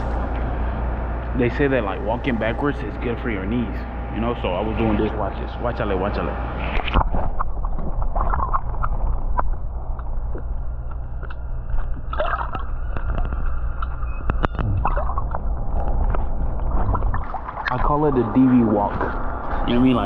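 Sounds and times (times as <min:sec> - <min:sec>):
steady low hum: 0:00.0 - 0:20.0
pool water sloshing: 0:11.0 - 0:20.0.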